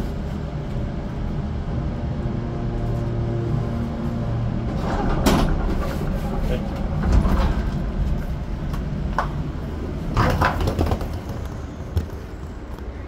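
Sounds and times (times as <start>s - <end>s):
suitcase wheels rumbling on concrete: 4.8s - 13.0s.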